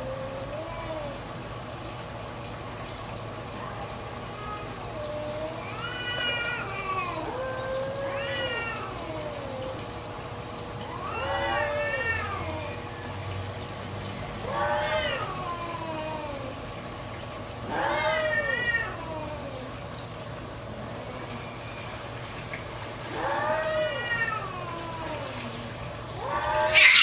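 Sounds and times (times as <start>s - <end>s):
cats yowling: 0.0s - 1.3s, 3.7s - 10.0s, 10.7s - 13.1s, 14.4s - 16.8s, 17.6s - 19.9s, 23.1s - 27.0s.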